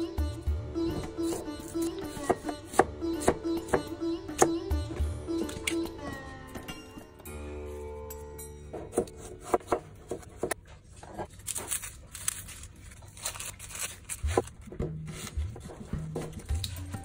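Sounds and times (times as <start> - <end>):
low background music: 0.0 - 10.6, 13.2 - 17.0
onion skin crackling: 11.2 - 17.0.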